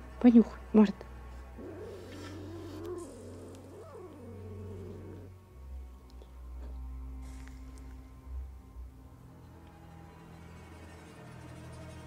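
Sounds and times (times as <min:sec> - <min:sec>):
cat yowling: 0:01.6 - 0:05.3.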